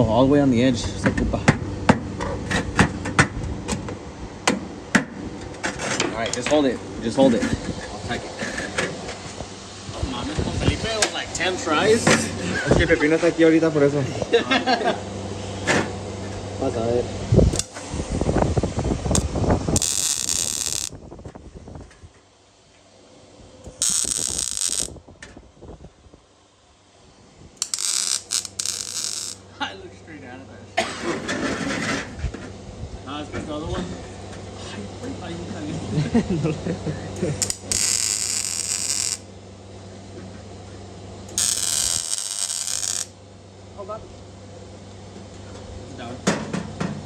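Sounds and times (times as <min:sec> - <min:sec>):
welder crackling and sizzling: 0:17.5 - 0:18.3, 0:19.0 - 0:21.1, 0:23.6 - 0:25.4, 0:27.5 - 0:29.5, 0:37.3 - 0:39.3, 0:41.3 - 0:43.2.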